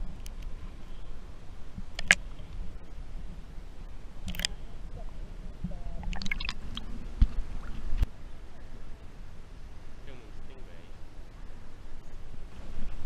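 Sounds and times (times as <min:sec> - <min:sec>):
low underwater rumble: 0:00.0 - 0:09.0
sharp clicks and crackles: 0:01.9 - 0:02.2.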